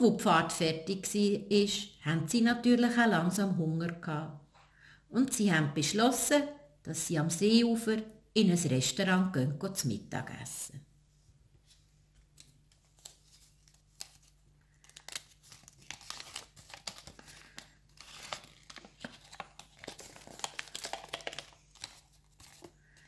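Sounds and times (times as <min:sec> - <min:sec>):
paper crackling and rustling: 0:11.6 - 0:23.0.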